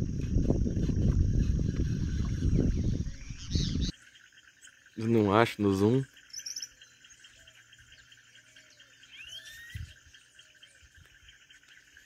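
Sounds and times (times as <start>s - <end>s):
insects chirring: 0.0s - 12.0s
rising bird whistles: 9.1s - 10.0s.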